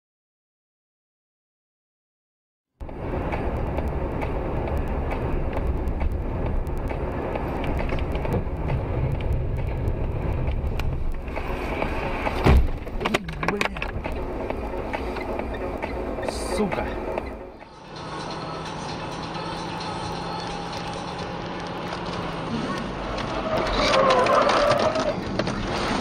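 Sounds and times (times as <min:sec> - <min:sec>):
car road and engine rumble: 0:02.8 - 0:26.0
sharp loud thump: 0:12.4 - 0:12.8.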